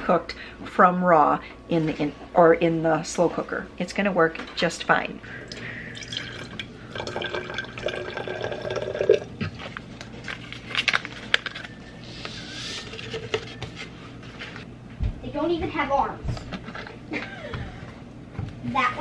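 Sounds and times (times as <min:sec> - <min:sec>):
liquid pouring into glass: 0:05.4 - 0:09.4.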